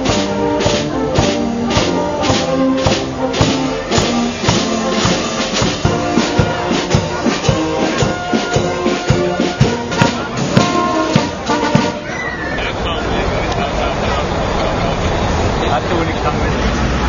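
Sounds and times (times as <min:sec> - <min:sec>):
cymbals and bass drum beat: 0:00.0 - 0:12.2
brass band playing: 0:00.0 - 0:12.8.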